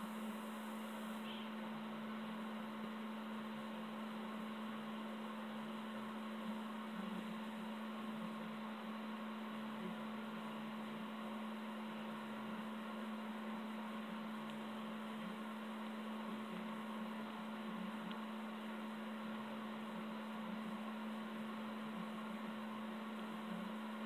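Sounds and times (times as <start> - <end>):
faint hiss: 0.0 - 3.8
electrical hum: 0.0 - 24.0.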